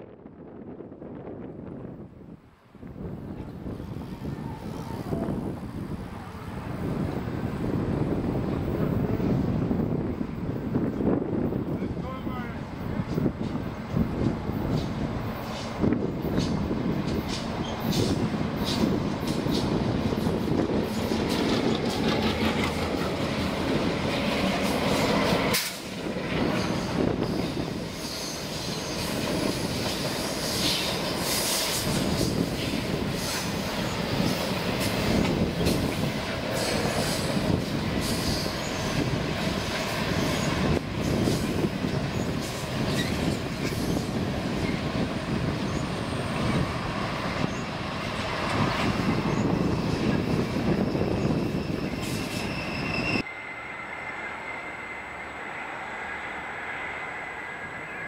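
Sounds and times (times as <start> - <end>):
train wheels rolling on rails: 2.8 - 58.0
wheel squeal: 42.2 - 44.8, 49.3 - 58.0.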